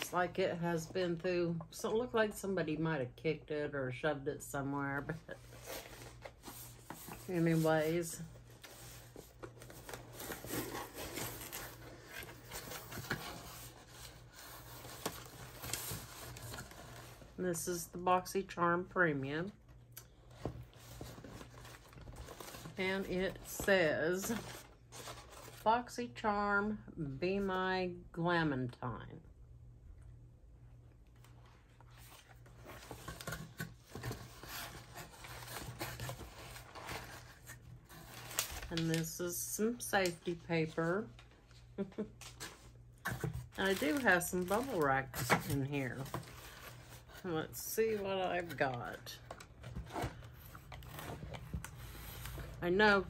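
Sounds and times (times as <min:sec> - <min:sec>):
packing paper rustling and crinkling: 0:05.3 - 0:17.4, 0:20.4 - 0:25.7, 0:31.2 - 0:47.2, 0:47.9 - 0:53.0.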